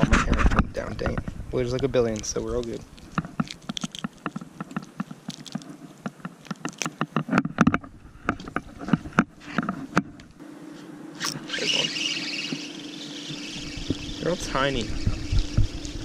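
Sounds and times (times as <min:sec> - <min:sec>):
hands handling fish and tackle: 0:00.0 - 0:11.4.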